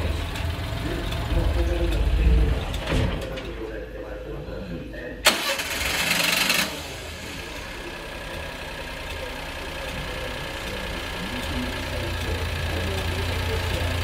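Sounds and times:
truck engine idling: 0:00.0 - 0:02.9, 0:05.3 - 0:14.0
truck engine starting: 0:00.0 - 0:03.7, 0:05.2 - 0:14.0.

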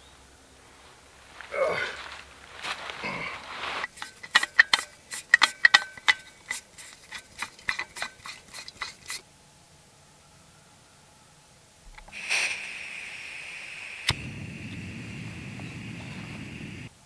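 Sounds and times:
metallic clicks of gas stove: 0:03.9 - 0:09.1.

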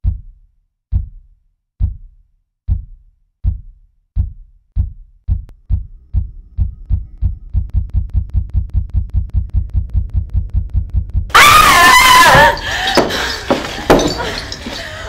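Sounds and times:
deep thumps: 0:00.0 - 0:00.3, 0:00.9 - 0:01.2, 0:01.8 - 0:02.1, 0:02.7 - 0:11.4.

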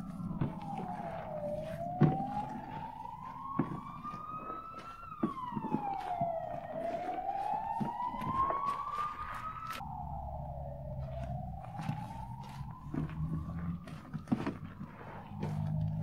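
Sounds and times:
slime popping and crackling: 0:00.0 - 0:10.0
wailing siren: 0:00.0 - 0:16.0.

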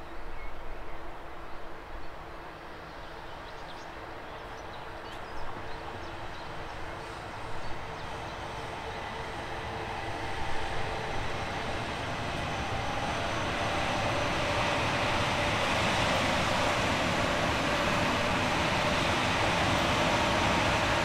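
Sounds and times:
train running: 0:04.9 - 0:21.0.

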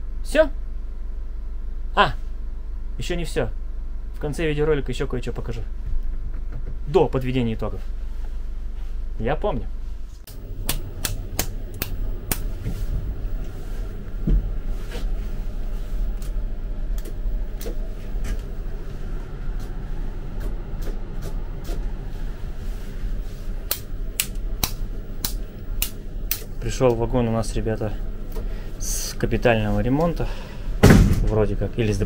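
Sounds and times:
low machine hum: 0:00.0 - 0:32.0
sharp clicks and knocks: 0:10.3 - 0:12.8.

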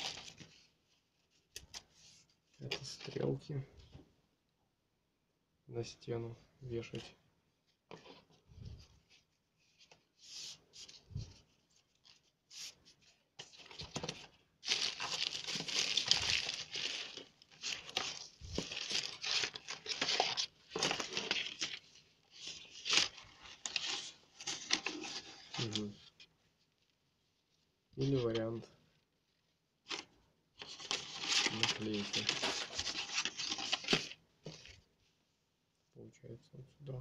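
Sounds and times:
packing paper crinkling: 0:13.4 - 0:26.2, 0:29.9 - 0:34.8.

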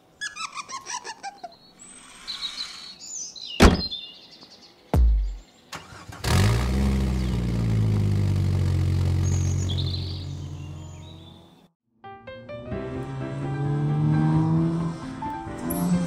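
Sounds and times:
low thud: 0:03.6 - 0:04.0, 0:05.0 - 0:05.4
sharp knock: 0:05.0 - 0:05.4
sports car engine running: 0:06.3 - 0:11.4.

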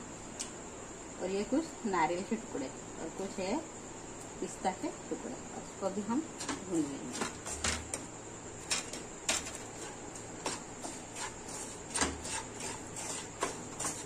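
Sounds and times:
wooden spatula scraping a pan: 0:06.4 - 0:08.0, 0:08.6 - 0:14.0.

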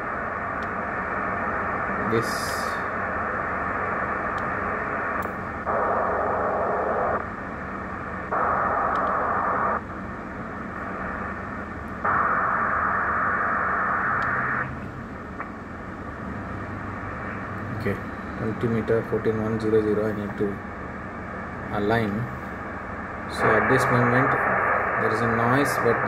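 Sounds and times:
radio hiss: 0:00.0 - 0:26.0
faint clicks: 0:00.6 - 0:00.8, 0:08.8 - 0:09.2, 0:14.2 - 0:14.4.

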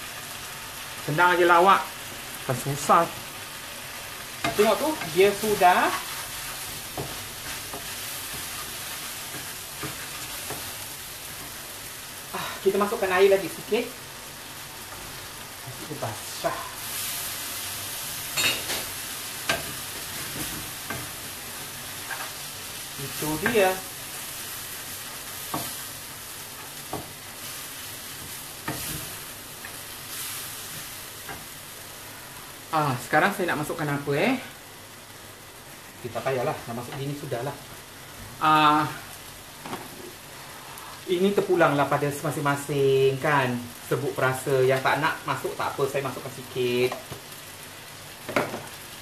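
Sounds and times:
food sizzling in a frying pan: 0:00.0 - 0:49.0
spatula stirring: 0:04.2 - 0:12.0, 0:14.6 - 0:31.6.

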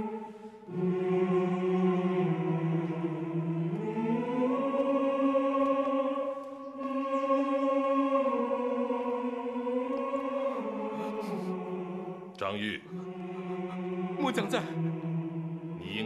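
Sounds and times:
choir chanting long notes: 0:00.0 - 0:16.0.

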